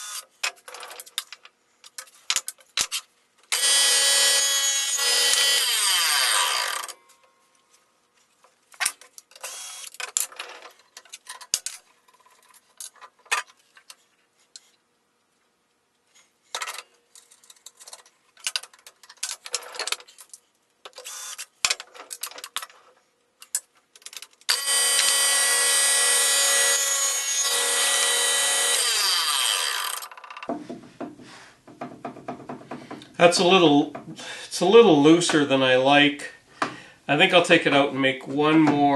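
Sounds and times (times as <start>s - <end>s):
table saw running: 3.6s - 7.0s, 24.5s - 30.1s.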